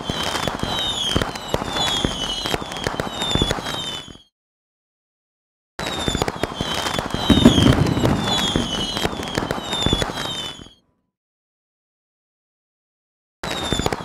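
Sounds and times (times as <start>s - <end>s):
fireworks crackling and banging: 0.0s - 4.2s, 6.0s - 10.7s
falling whistles: 0.0s - 4.3s, 6.0s - 10.8s.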